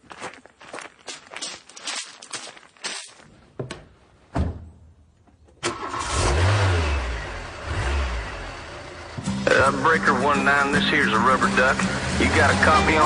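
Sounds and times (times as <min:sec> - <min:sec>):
footsteps: 0:00.0 - 0:04.2
thump: 0:03.6 - 0:04.8
lorry engine starting and revving: 0:05.6 - 0:13.0.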